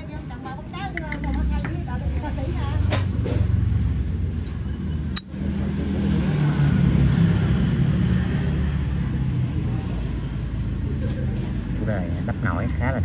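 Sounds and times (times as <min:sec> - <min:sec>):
vehicle engine rumbling: 0:00.8 - 0:13.0
sharp click: 0:05.1 - 0:05.3.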